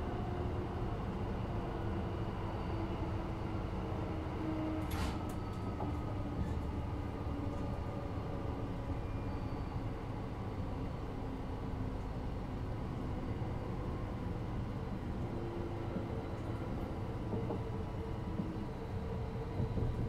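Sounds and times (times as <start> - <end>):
train wheels rumbling on track: 11.5 - 20.0.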